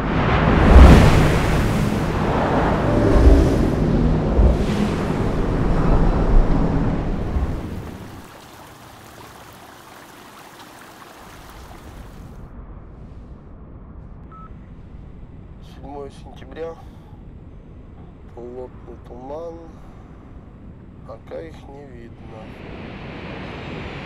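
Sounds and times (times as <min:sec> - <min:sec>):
surf breaking against rocks: 0:00.6 - 0:12.3.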